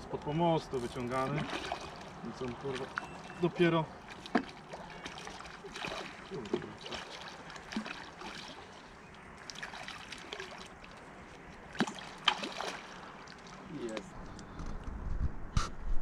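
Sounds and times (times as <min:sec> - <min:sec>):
fish splashing at surface: 0:01.3 - 0:11.0, 0:11.7 - 0:13.7.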